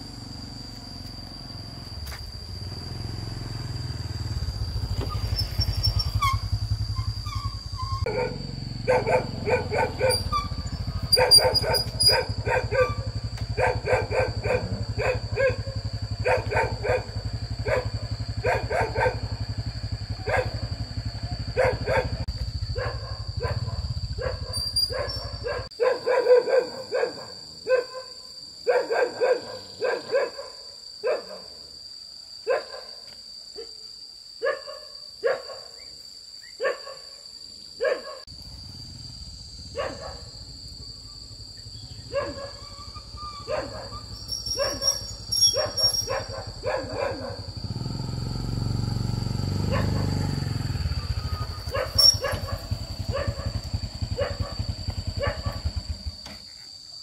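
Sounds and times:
dog barking: 8.0 - 19.4, 20.2 - 20.7, 21.4 - 31.6, 32.4 - 33.8, 34.4 - 35.9, 36.6 - 37.2, 37.8 - 38.3, 39.7 - 40.3, 42.1 - 47.6, 49.6 - 50.2, 51.5 - 55.8.

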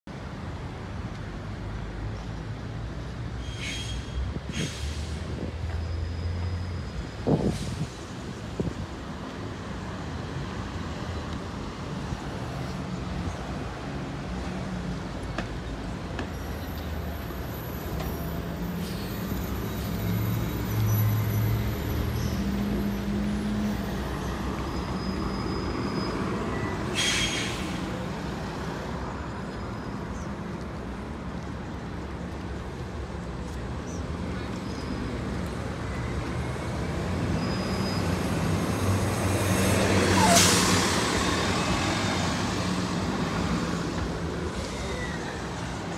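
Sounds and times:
street traffic: 0.0 - 45.9
air brake hiss: 3.4 - 5.4, 7.4 - 8.0, 26.9 - 28.0.

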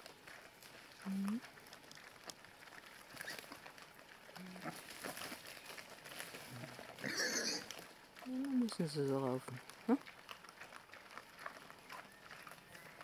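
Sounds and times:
boar crunching grain: 0.0 - 13.0
snuffling at the ground: 0.0 - 13.0
boar grunting: 6.4 - 7.9.

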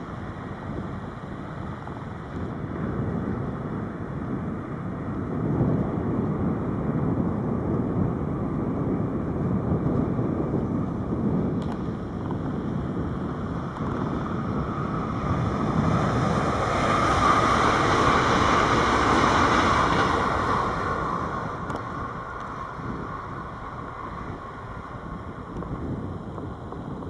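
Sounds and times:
train wheels rolling on rails: 0.0 - 27.0.

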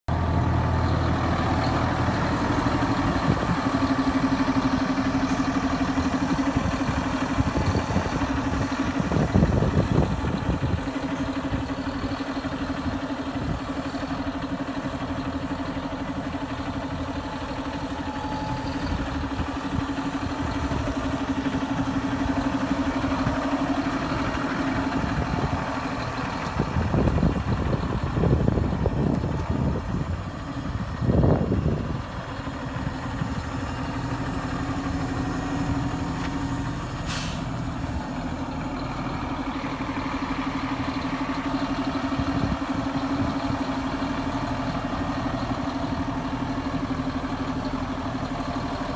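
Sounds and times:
tractor diesel engine idling: 0.1 - 48.9.

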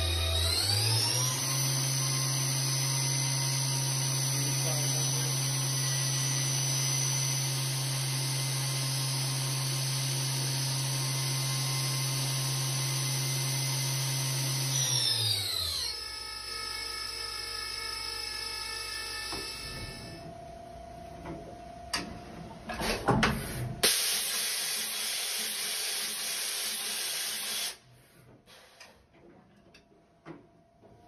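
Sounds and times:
machine spindle whining: 0.0 - 20.5.

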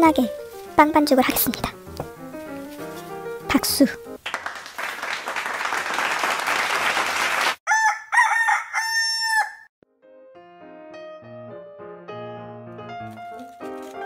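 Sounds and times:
soft music: 0.0 - 4.2, 9.8 - 14.0
applause: 4.2 - 7.6
rooster crowing: 7.7 - 9.7.

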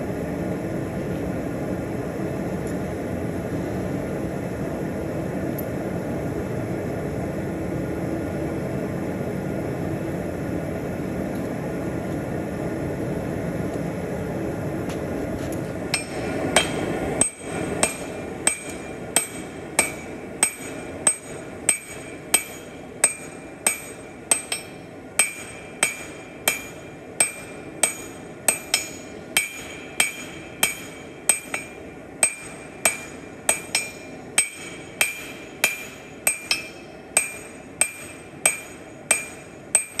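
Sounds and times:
steady rushing noise: 11.6 - 37.3
hammer striking steel on anvil: 15.9 - 40.0.

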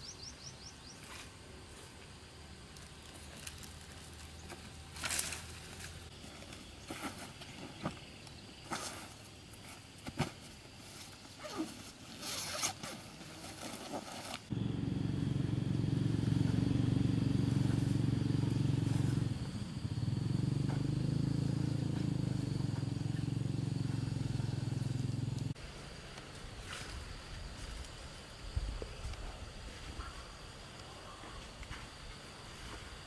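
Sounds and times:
nylon rustling: 10.4 - 14.5
zipper: 11.4 - 14.4
loud low hum: 14.5 - 25.6.

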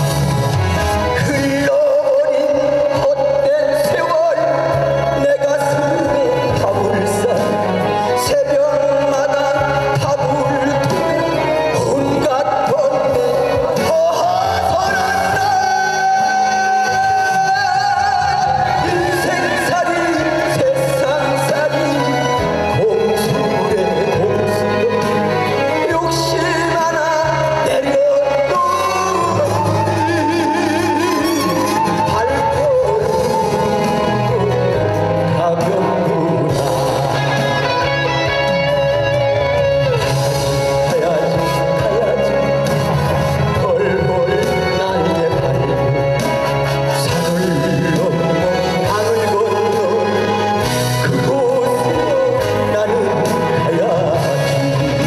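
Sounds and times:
backing music: 0.0 - 55.0
guitar gliding melody: 0.0 - 55.0
steady bass line: 0.0 - 55.0
man singing a long note: 1.0 - 42.7.

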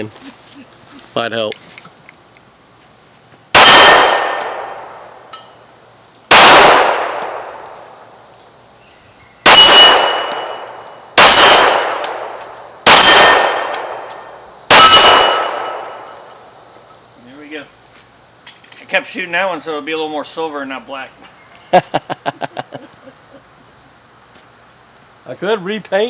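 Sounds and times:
pistol shots: 3.5 - 5.0, 6.3 - 8.0, 9.4 - 16.3
steel plate target clanging: 9.7 - 14.2, 14.8 - 16.2.

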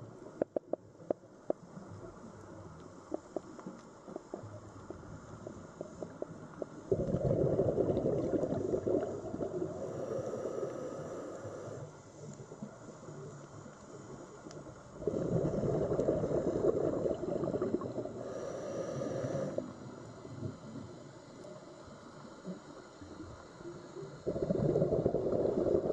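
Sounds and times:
underwater exhale bubbling: 5.7 - 11.9, 14.9 - 21.0, 24.1 - 25.9.

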